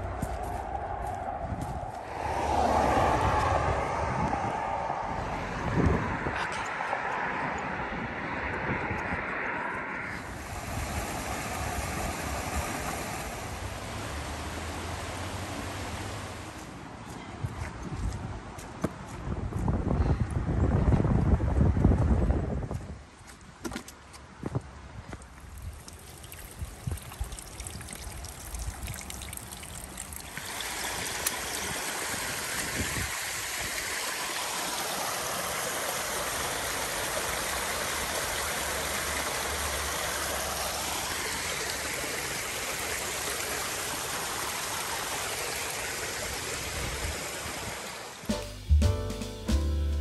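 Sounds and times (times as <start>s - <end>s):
water flowing: 0.0s - 7.8s, 10.1s - 16.9s, 25.3s - 48.3s.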